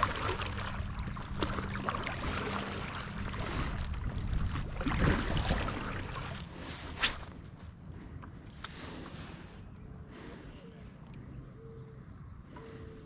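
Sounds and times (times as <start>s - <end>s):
paddle dipping into water: 0.0s - 7.3s
water lapping against paddle board: 0.0s - 7.5s.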